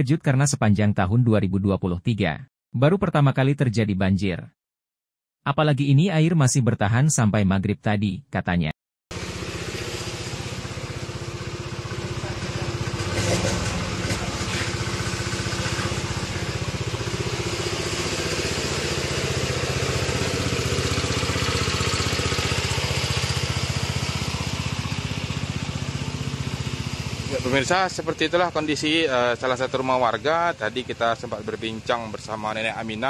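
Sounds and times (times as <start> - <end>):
small pump engine running: 9.1 - 33.0.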